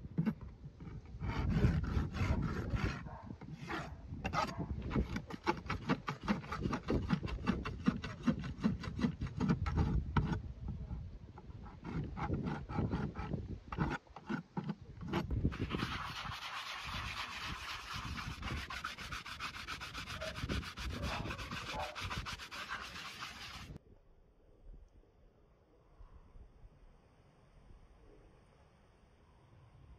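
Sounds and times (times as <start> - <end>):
rasp filing a hoof: 0.0 - 10.8, 11.4 - 23.8.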